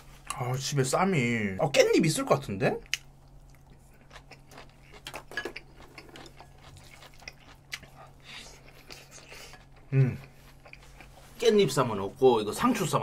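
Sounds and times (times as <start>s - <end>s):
low steady hum: 0.0s - 13.0s
wet chewing clicks and smacks: 2.8s - 11.1s.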